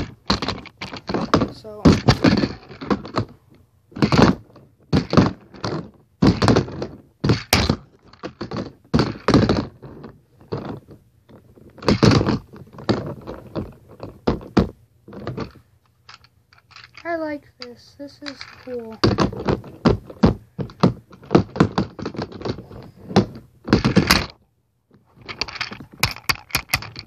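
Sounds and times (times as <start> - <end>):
handboard thunks and clacks: 0.0 - 15.6, 18.5 - 24.4.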